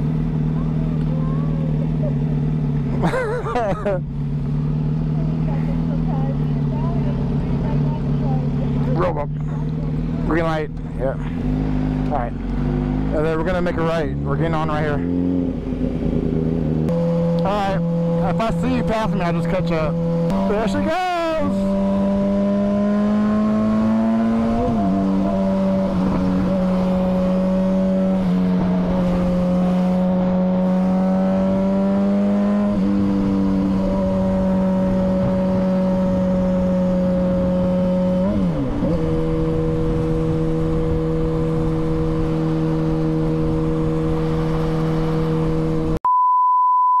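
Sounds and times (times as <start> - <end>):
motorcycle engine cruising: 0.0 - 46.0
high-pitched beep: 46.0 - 47.0.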